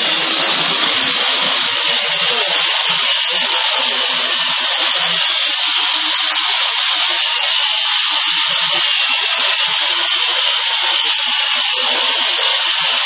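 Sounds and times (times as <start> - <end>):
toy helicopter high-pitched buzz: 0.0 - 13.0.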